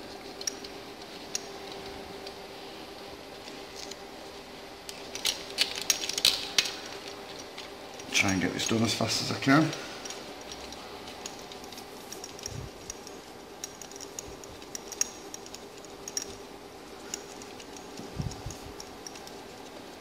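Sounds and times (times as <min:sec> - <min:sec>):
metallic clicks of timing chain: 0:04.9 - 0:19.8.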